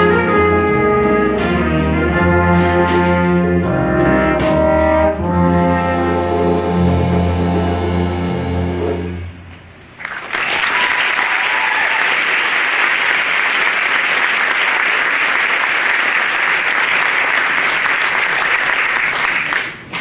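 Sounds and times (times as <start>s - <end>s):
jazz band chord: 0.0s - 9.5s
audience applause: 10.0s - 20.0s.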